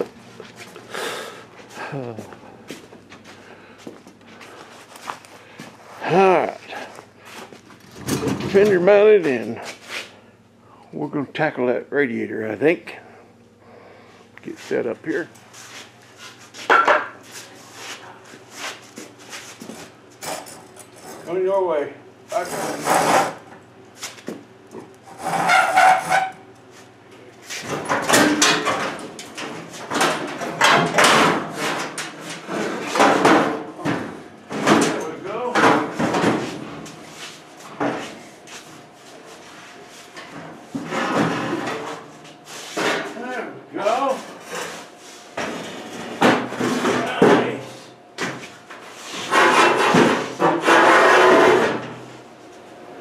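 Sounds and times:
sheet metal scraping: 25.1 - 26.4, 49.1 - 51.9.

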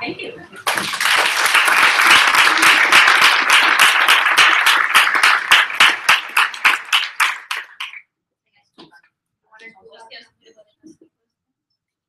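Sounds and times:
audience applauding: 0.6 - 8.0.

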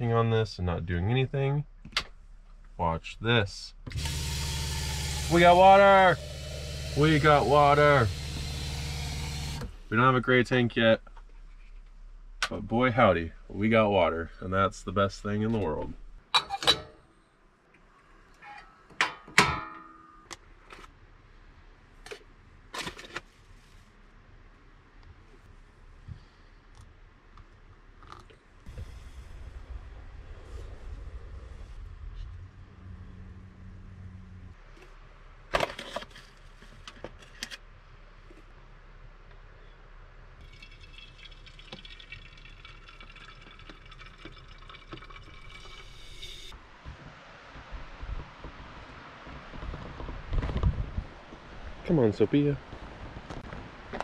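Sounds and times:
liquid hiss through filter: 40.5 - 46.6.

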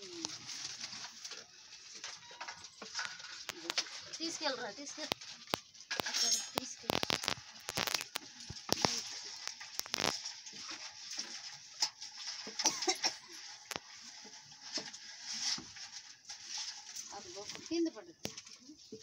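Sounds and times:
fire crackles: 0.0 - 19.0.

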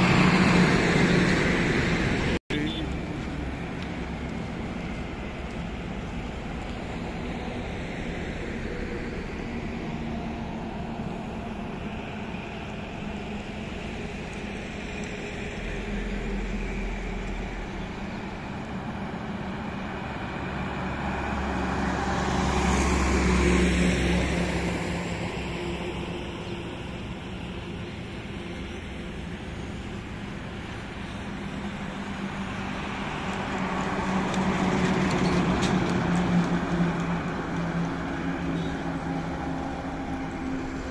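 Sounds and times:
trucks passing on highway: 0.0 - 40.9.

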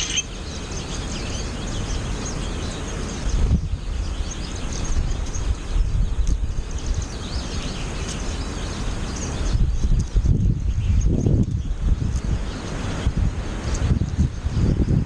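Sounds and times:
birds chirping: 0.0 - 15.0
wind buffeting microphone: 0.0 - 15.0.

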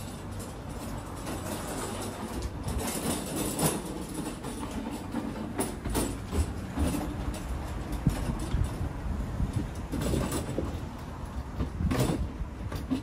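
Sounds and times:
cart wheels rolling on wood: 0.0 - 13.0
wheel clacks: 0.0 - 13.0.

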